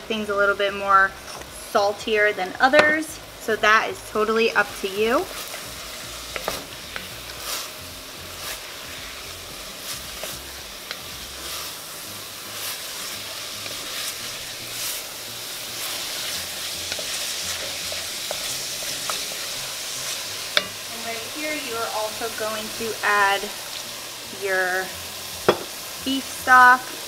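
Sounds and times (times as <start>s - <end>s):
meat sizzling in a pot: 0.0s - 27.0s
wooden spoon scraping and tapping: 6.3s - 7.7s, 15.8s - 19.5s.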